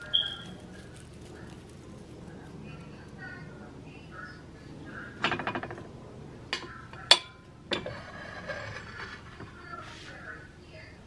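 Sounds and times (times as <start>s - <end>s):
dishes clinking: 5.2s - 5.9s, 6.5s - 9.6s.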